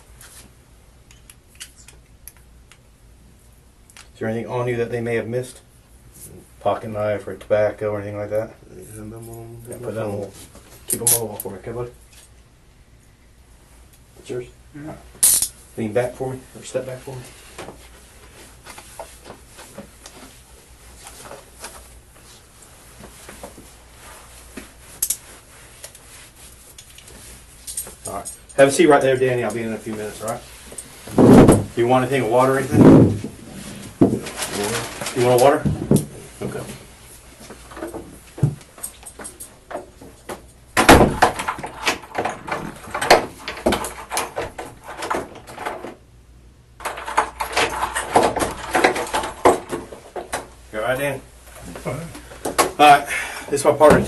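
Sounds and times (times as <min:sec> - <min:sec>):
handling noises: 0:16.8 - 0:46.1, 0:46.8 - 0:52.9
clothing rustling: 0:29.3 - 0:40.2
door closing with heavy thump: 0:31.1 - 0:31.8, 0:40.8 - 0:43.8
knocks: 0:31.1 - 0:31.8, 0:32.7 - 0:33.4.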